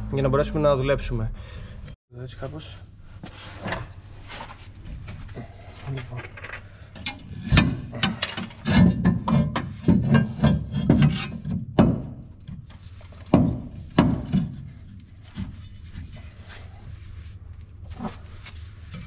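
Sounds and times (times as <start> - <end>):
metal knocks and scraping: 3.5 - 16.4.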